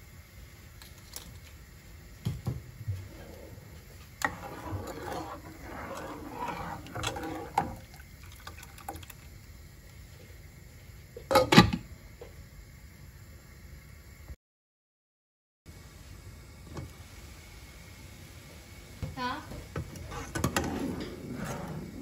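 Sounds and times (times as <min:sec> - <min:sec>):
liquid sloshing and swirling: 0:03.0 - 0:09.3.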